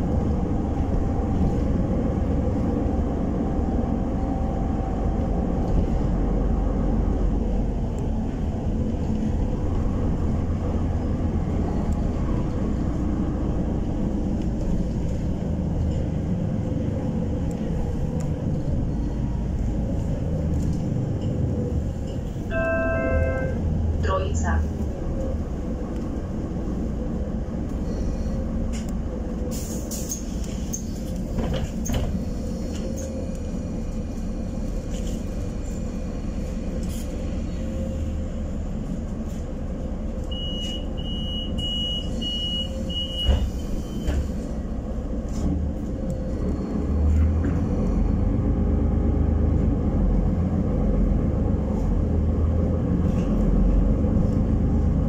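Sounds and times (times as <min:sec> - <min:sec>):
bus engine and road rumble: 0:00.0 - 0:55.0
short high beeps: 0:22.5 - 0:23.6.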